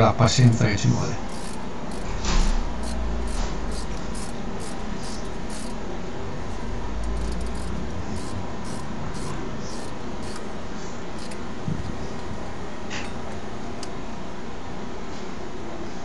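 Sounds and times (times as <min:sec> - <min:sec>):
steady low rumble: 0:01.1 - 0:12.8
ratchet clicking: 0:01.2 - 0:05.8, 0:06.4 - 0:10.5, 0:11.1 - 0:11.5.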